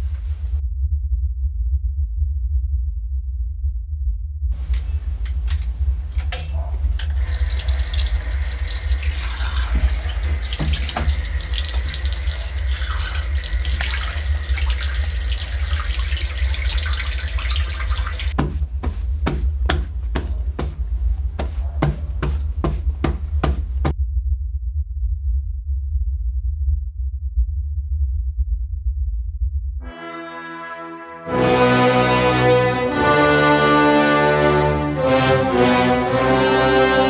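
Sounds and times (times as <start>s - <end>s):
tap running into sink: 6.2s - 20.8s
water splashing face washing: 7.0s - 19.0s
towel being handled: 18.4s - 23.9s.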